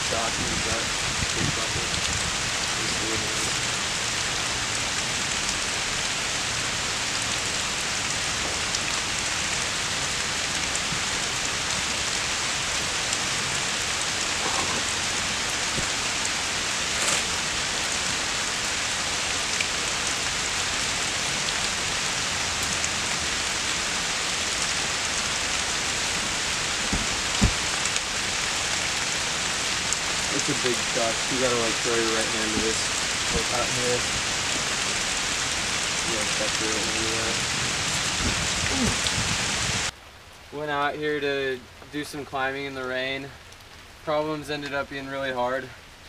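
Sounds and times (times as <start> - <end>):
steady rain hiss: 0.0 - 46.0
low thump: 26.9 - 27.6.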